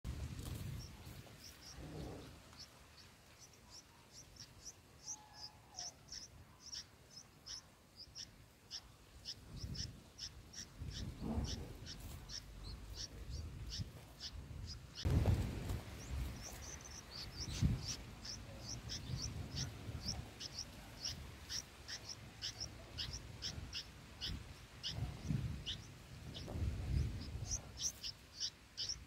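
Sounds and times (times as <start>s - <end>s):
low rumbles: 0.1s - 3.4s, 9.4s - 29.0s
nestlings begging chirps: 0.5s - 29.0s.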